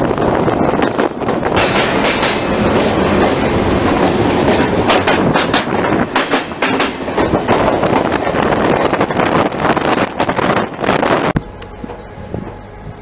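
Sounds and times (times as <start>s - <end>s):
train rolling rumble: 0.0s - 13.0s
train wheels clacking on rail joints: 0.5s - 10.4s.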